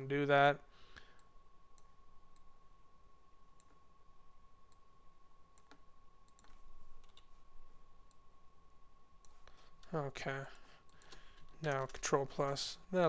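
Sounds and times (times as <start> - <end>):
computer mouse clicks: 5.5 - 7.4, 10.8 - 12.1.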